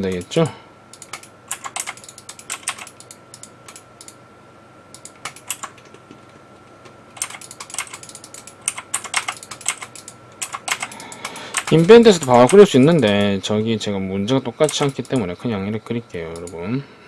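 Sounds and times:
typing on computer keyboard: 1.0s - 4.1s, 5.0s - 5.9s, 7.2s - 13.3s, 14.6s - 15.2s
faint high whine: 10.7s - 17.0s.

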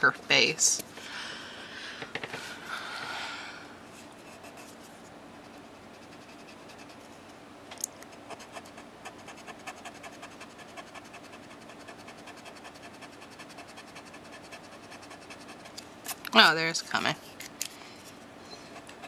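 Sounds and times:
marker scratching on cardstock: 8.3s - 15.8s.

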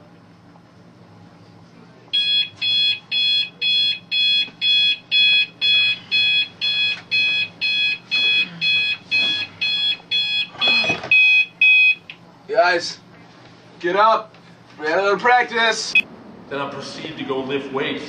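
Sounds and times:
alarm clock beeping: 2.2s - 12.0s.

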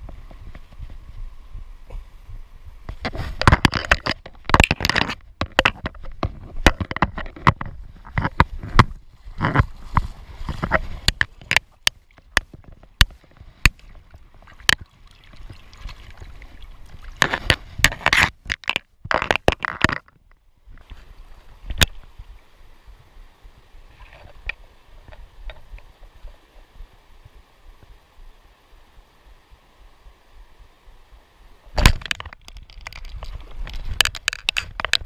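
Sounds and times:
water splashing and sloshing: 2.9s - 22.5s.

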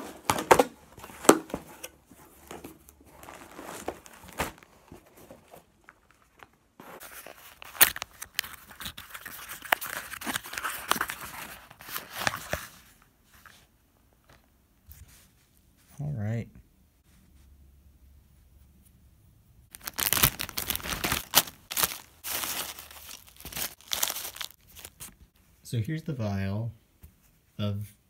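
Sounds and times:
packaging tearing and crinkling: 3.1s - 12.5s, 19.7s - 25.2s.

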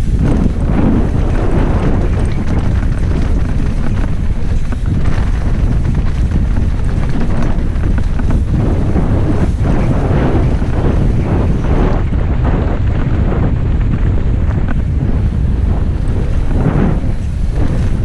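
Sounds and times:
bike knocks and rattles: 0.0s - 18.0s
wind buffeting microphone: 0.0s - 18.0s.

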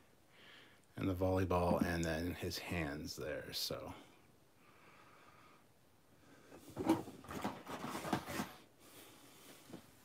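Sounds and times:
plastic packaging crinkling: 7.2s - 8.6s.

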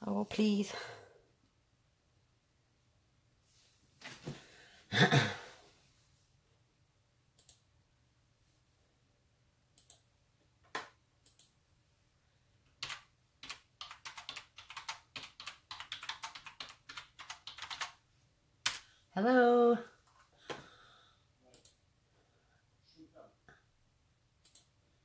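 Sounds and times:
keyboard typing clicks: 7.4s - 7.6s, 9.8s - 10.1s, 10.7s - 11.6s, 12.8s - 18.0s, 24.4s - 24.7s.

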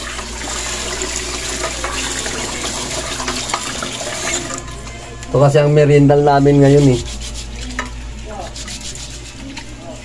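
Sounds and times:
tap water running into a pot: 0.0s - 4.7s.

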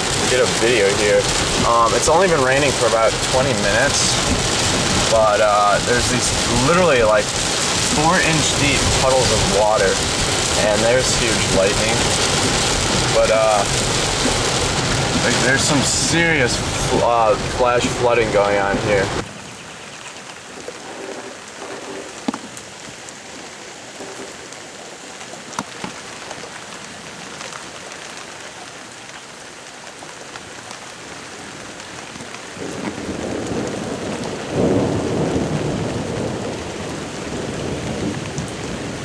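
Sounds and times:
steady rain: 0.0s - 39.0s
low roll of thunder: 32.6s - 39.0s.

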